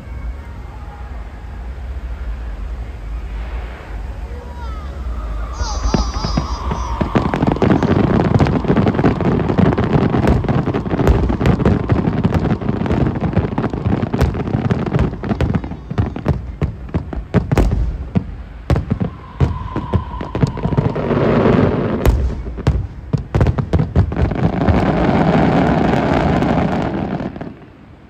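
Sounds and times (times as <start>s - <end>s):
rumbling background: 0.0s - 25.1s
rushing crackle of fireworks: 0.0s - 28.0s
fireworks shells bursting: 5.6s - 24.9s.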